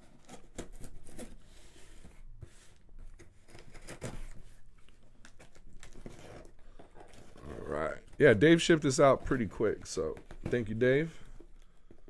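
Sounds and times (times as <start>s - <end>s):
knife cutting cardboard box: 0.0s - 4.4s.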